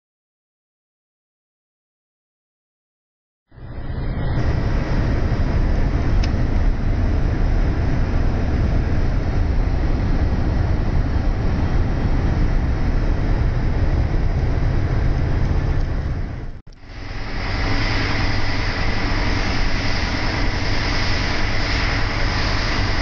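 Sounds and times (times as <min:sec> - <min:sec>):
diesel engine drone in truck cab: 0:03.6 - 0:23.0
road noise: 0:03.6 - 0:23.0.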